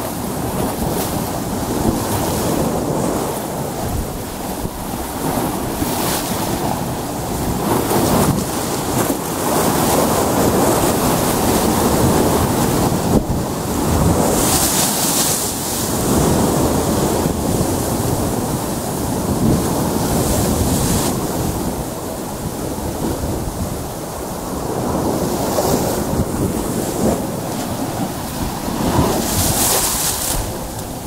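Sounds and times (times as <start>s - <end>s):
waves breaking on rocky shore: 0.0s - 31.0s
wind buffeting microphone: 0.0s - 31.0s.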